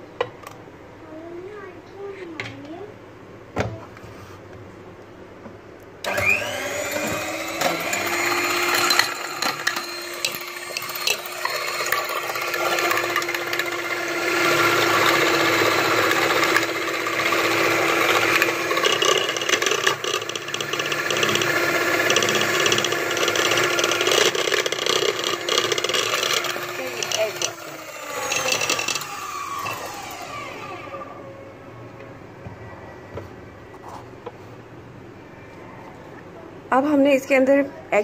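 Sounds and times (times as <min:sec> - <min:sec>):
electric hand beater motor: 0:06.1 - 0:31.0.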